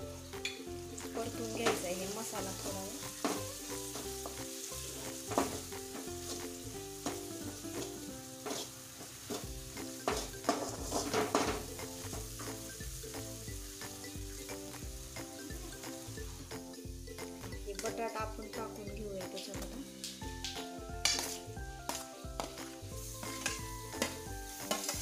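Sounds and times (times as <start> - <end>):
masala sizzling in hot oil: 0.0 - 25.0
metal spatula scraping pan: 7.8 - 11.6, 23.1 - 25.0.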